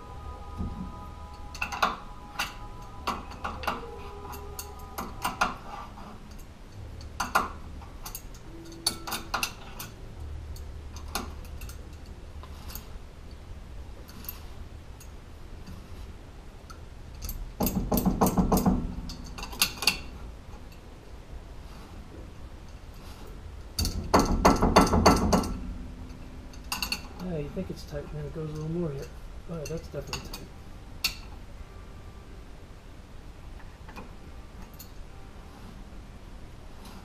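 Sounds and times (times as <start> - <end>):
metal scraping: 0.0 - 16.4, 17.2 - 31.5, 33.6 - 37.0
wrench clicking on metal nut: 7.0 - 10.0.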